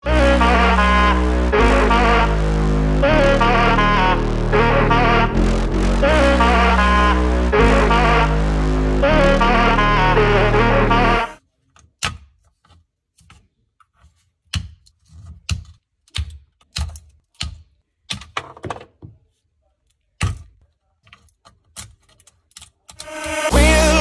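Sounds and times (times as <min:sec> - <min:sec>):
music: 0:00.0 - 0:11.4, 0:23.0 - 0:24.0.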